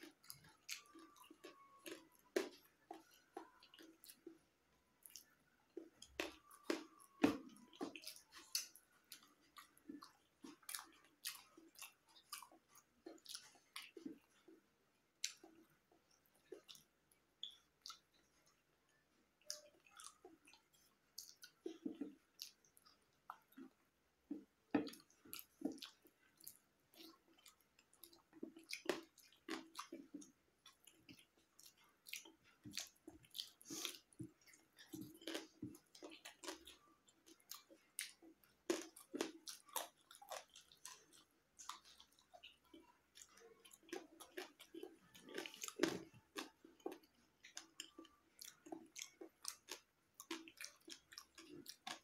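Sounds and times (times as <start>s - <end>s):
person chewing food: 0.0s - 52.0s
mouth clicks and smacks: 15.2s - 18.2s.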